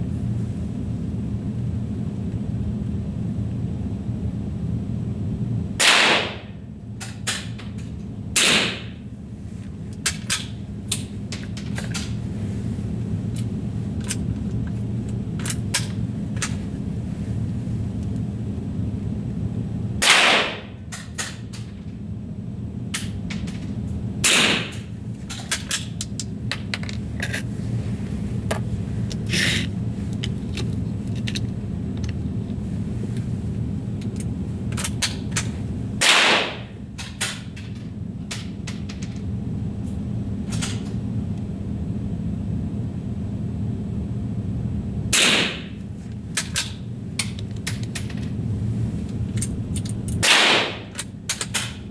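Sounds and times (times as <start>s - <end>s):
steady low hum: 0.0s - 51.9s
rifle shots: 5.8s - 6.4s, 20.0s - 20.6s, 36.0s - 36.6s, 50.2s - 50.8s.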